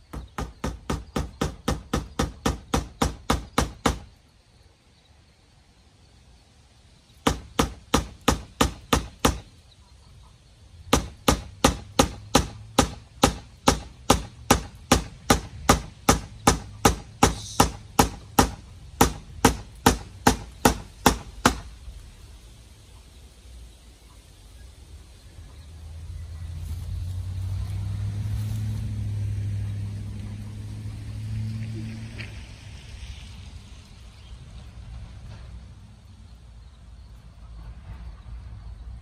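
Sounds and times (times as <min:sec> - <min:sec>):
hammer nailing wood: 0:00.0 - 0:04.1, 0:07.2 - 0:09.5, 0:10.9 - 0:21.7.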